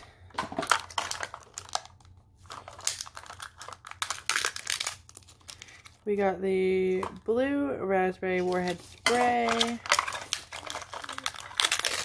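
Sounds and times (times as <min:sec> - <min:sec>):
plastic wrapping crinkling: 0:00.5 - 0:06.0, 0:08.4 - 0:12.0.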